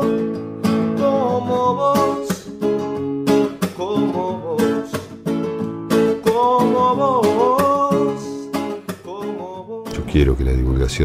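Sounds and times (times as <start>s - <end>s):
person singing: 0.0s - 0.2s, 0.8s - 2.6s, 3.6s - 5.2s, 6.2s - 11.0s
strummed acoustic guitar: 0.0s - 11.0s.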